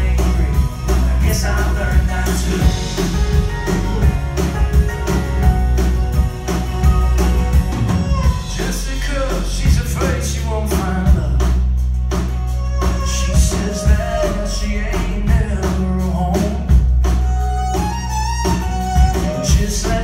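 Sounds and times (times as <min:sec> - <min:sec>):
sliding melody line: 0:00.0 - 0:11.2, 0:12.3 - 0:20.0
drum kit beat: 0:00.0 - 0:20.0
strummed acoustic guitars: 0:00.0 - 0:20.0
upright bass: 0:00.0 - 0:20.0.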